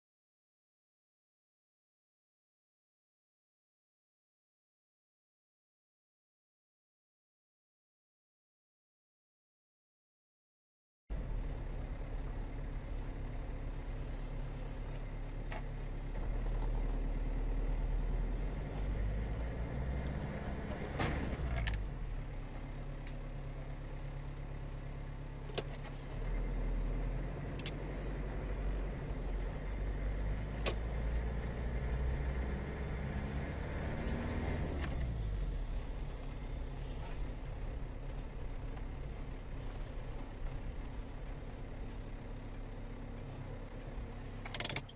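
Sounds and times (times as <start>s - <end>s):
car engine and road noise: 11.1s - 44.9s
sharp clicks or rattles: 44.4s - 44.9s.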